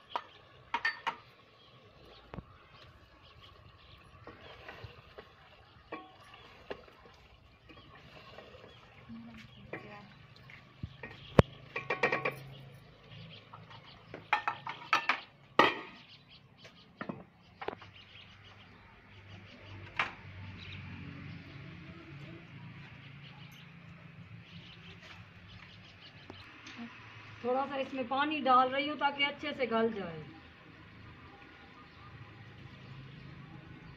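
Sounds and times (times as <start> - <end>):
wooden spoon knocking metal pot: 11.0 - 12.5.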